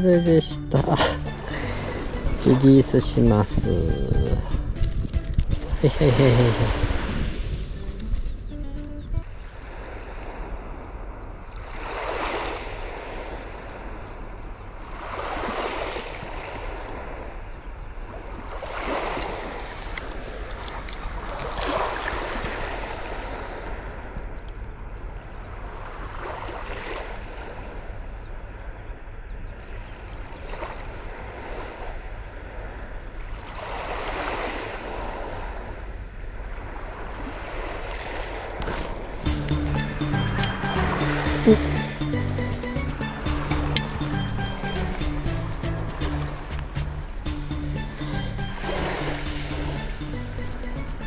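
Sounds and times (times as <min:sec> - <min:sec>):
small waves washing on sand: 0:09.3 - 0:28.8, 0:29.6 - 0:40.0.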